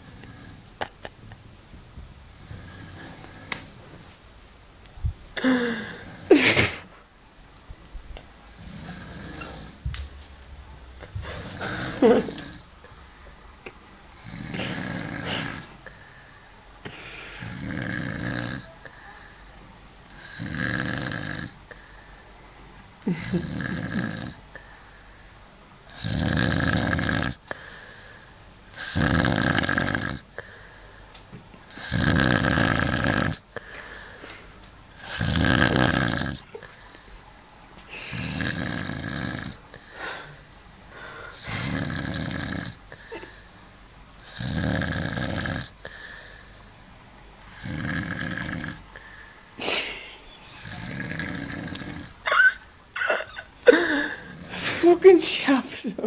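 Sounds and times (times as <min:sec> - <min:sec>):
man snoring: 0:08.6 - 0:09.8, 0:11.2 - 0:12.7, 0:14.2 - 0:15.9, 0:17.3 - 0:18.7, 0:20.1 - 0:21.7, 0:23.1 - 0:24.5, 0:25.9 - 0:27.6, 0:28.7 - 0:30.4, 0:31.7 - 0:33.6, 0:35.0 - 0:36.5, 0:38.0 - 0:39.7, 0:41.2 - 0:43.3, 0:44.2 - 0:46.2, 0:47.4 - 0:49.1, 0:49.7 - 0:52.2.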